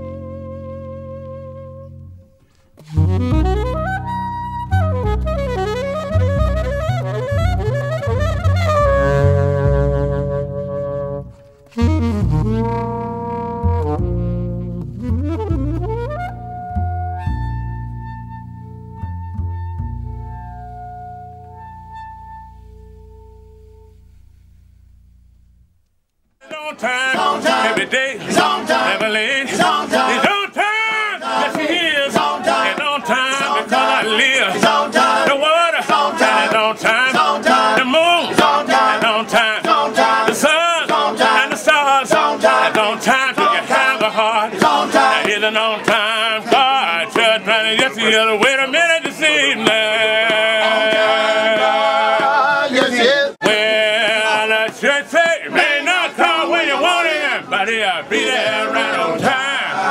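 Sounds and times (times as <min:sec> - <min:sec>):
music: 0:00.0 - 0:25.8, 0:27.0 - 0:30.3, 0:31.2 - 0:54.4
man singing in wavering voice: 0:45.3 - 0:55.5.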